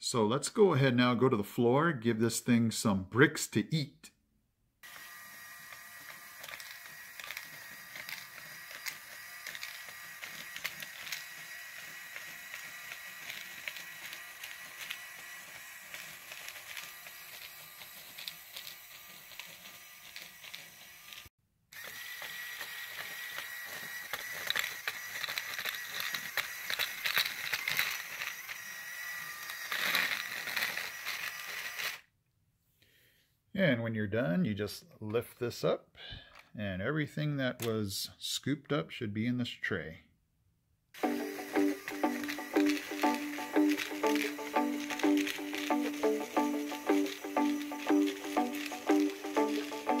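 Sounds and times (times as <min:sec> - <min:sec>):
motor whine: 0:04.8 - 0:32.0, 0:41.0 - 0:50.0.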